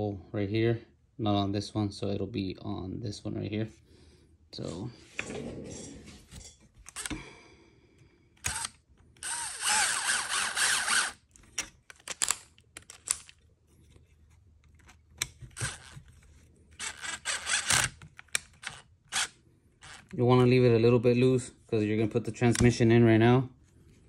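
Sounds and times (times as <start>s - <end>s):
electric screwdriver spinning: 6.9s - 7.2s, 8.4s - 11.3s, 15.5s - 16.0s, 16.8s - 20.1s
small clicks of parts handled: 11.2s - 18.9s.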